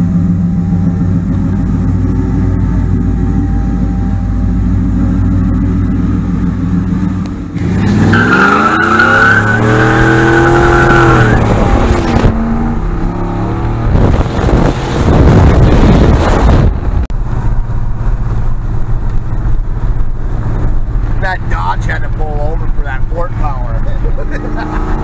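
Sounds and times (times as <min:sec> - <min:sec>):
truck engine revving: 0:00.0 - 0:17.6, 0:18.3 - 0:25.0
wind and road noise: 0:00.0 - 0:25.0
tires squealing: 0:07.6 - 0:12.3.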